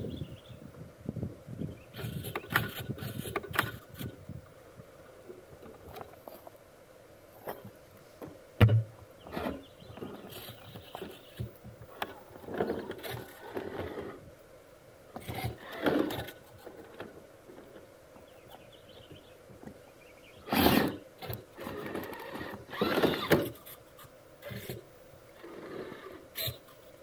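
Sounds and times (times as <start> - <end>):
toy car motor whirring: 2.0 - 4.1, 12.0 - 14.2, 15.2 - 17.0, 20.5 - 24.8, 25.4 - 26.8
tyres scraping against stones: 9.3 - 14.2, 15.2 - 17.9.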